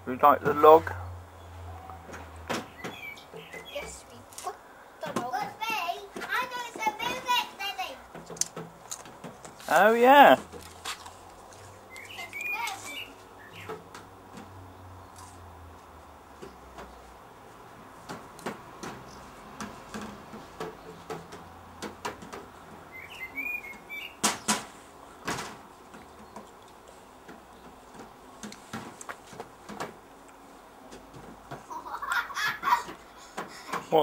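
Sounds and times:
bird chirping: 0:01.0 - 0:04.1, 0:11.9 - 0:13.8, 0:22.9 - 0:24.6.

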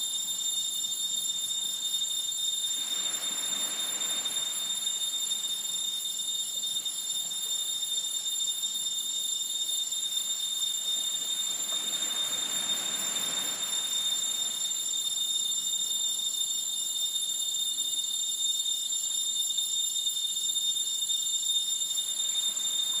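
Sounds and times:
insect chorus: 0:00.0 - 0:23.0
surf rushing: 0:02.8 - 0:04.8, 0:11.4 - 0:14.6.

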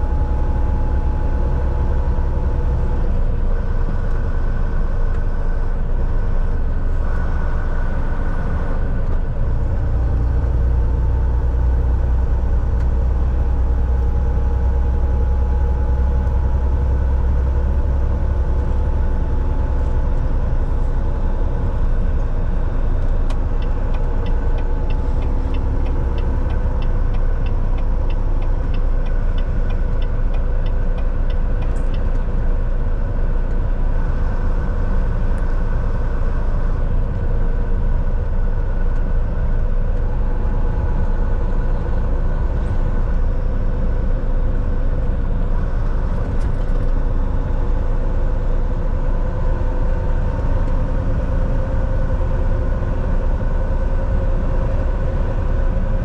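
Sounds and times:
truck diesel engine and road rumble: 0:00.0 - 0:56.0
light ticking: 0:23.3 - 0:32.2.

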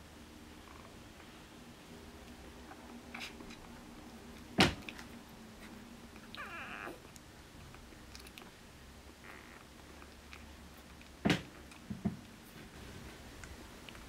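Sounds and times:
puppies squeaking whine: 0:06.2 - 0:07.1.

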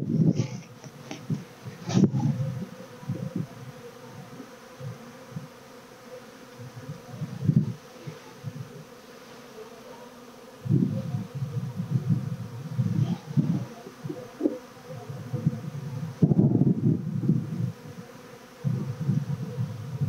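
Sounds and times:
bees buzzing: 0:00.0 - 0:20.0.

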